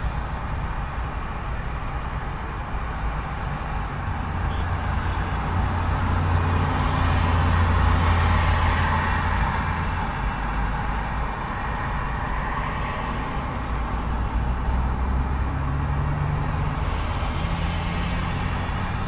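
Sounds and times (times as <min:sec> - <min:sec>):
road traffic passing: 0:00.0 - 0:19.0
vehicle passing close: 0:11.8 - 0:19.0.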